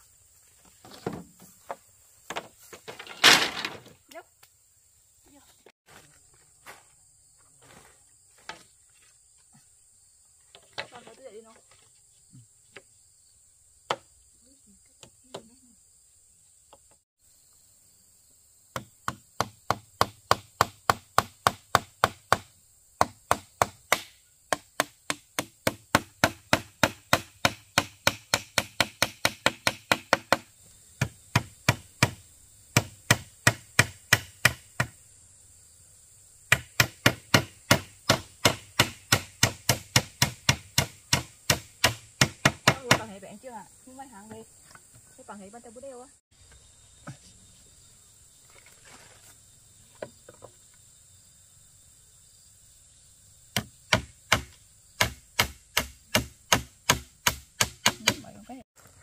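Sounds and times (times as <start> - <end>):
blade chopping bamboo: 18.8 - 35.0, 36.5 - 43.1, 53.6 - 58.4.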